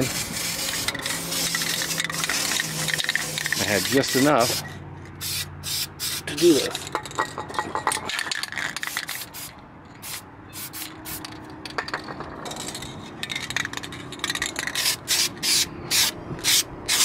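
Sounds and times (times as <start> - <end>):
spray can hissing: 0.0 - 4.6, 5.2 - 6.5, 8.9 - 11.3, 14.8 - 17.0.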